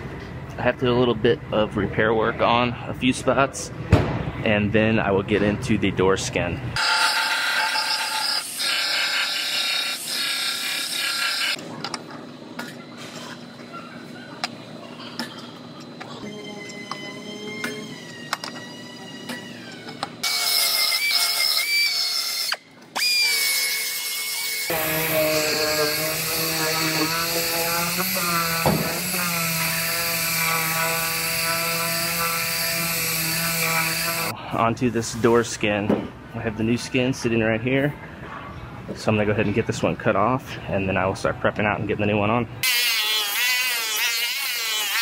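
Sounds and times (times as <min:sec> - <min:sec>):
belt sander grinding steel: 0:06.8 - 0:11.6, 0:18.0 - 0:34.3, 0:42.6 - 0:45.0
disc grinder whining on metal: 0:23.0 - 0:34.3.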